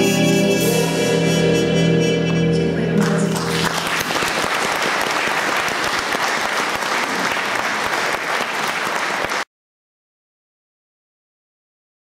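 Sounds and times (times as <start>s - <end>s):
audience applauding: 3.0s - 9.5s.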